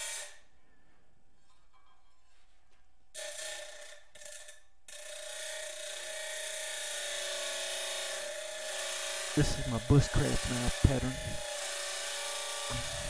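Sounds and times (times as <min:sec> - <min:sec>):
grinding wheel on steel: 0:03.2 - 0:13.0
motor hum: 0:08.0 - 0:13.0.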